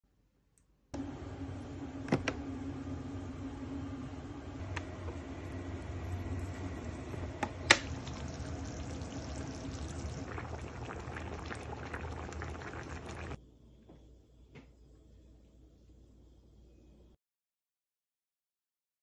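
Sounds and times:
steady low hum: 1.0s - 17.2s
thick sauce bubbling and popping: 7.6s - 13.4s.

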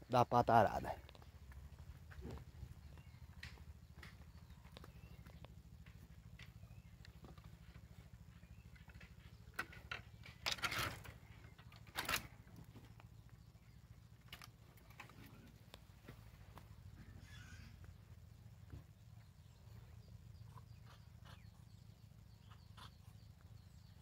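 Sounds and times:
clicks and brushing of wooden stakes: 9.0s - 12.4s.

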